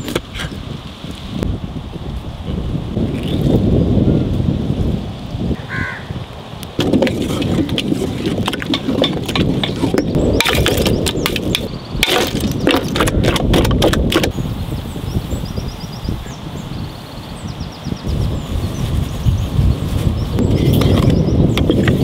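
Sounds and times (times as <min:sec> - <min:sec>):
wind rumbling on microphone: 0:00.0 - 0:22.0
ice blocks cracking and knocking: 0:06.8 - 0:14.3.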